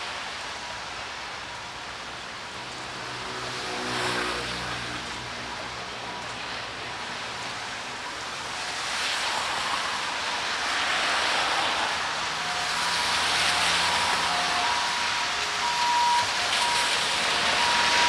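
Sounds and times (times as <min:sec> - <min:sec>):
rain on wet street: 0:00.0 - 0:18.0
vehicles passing on wet road: 0:00.0 - 0:18.0.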